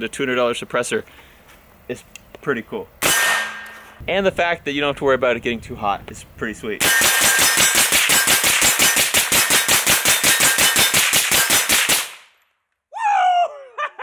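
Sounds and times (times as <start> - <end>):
suppressed rifle rapid fire: 3.0 - 3.8, 6.8 - 12.3.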